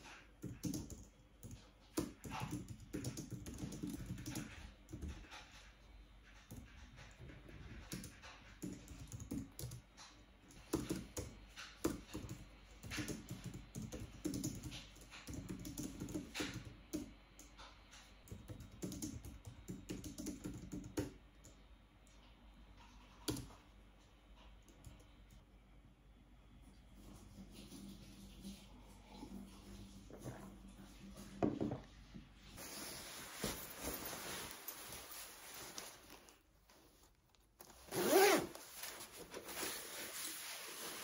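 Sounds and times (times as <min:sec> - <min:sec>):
typing on keyboard: 0:00.4 - 0:05.0, 0:07.7 - 0:09.9, 0:10.6 - 0:17.5, 0:18.2 - 0:21.6.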